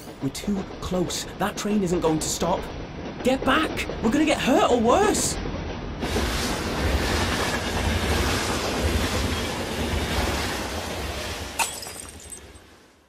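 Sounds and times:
train passing at speed: 0.0s - 11.6s.

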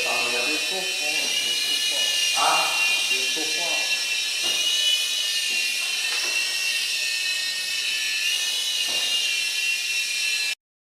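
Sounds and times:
toy helicopter motor whine: 0.0s - 10.6s.

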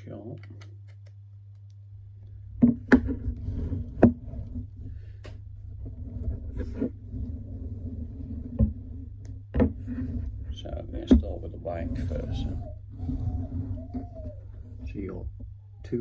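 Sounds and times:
plastic knocks and clicks: 2.6s - 3.2s
plastic model rubbing on desk: 3.0s - 15.2s.

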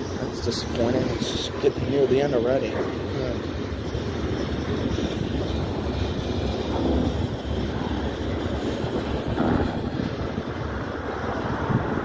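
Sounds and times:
freight train wheels rolling on rails: 0.0s - 12.0s.

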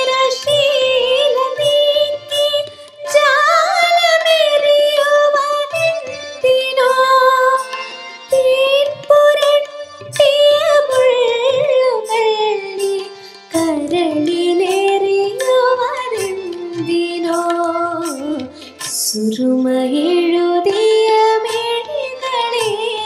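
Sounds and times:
backing track with light percussion: 0.0s - 23.0s
woman singing: 0.0s - 23.0s.

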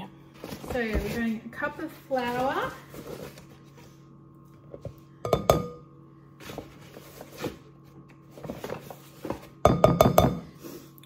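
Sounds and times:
measuring cup clinking on bowl: 5.2s - 5.8s.

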